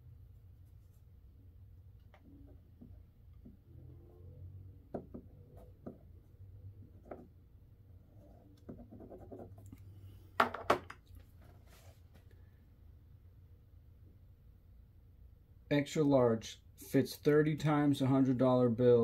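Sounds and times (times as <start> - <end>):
pen scratching on paper: 8.1 - 9.7.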